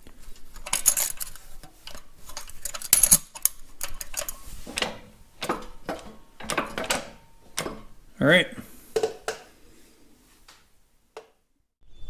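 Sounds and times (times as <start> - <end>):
metal parts clinking: 0.3 - 4.6.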